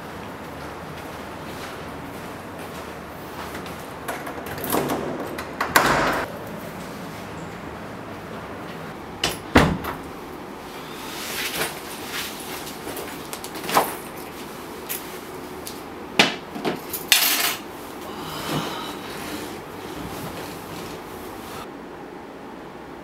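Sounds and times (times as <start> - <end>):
door opening and shutting: 4.1 - 6.3, 9.2 - 10.1.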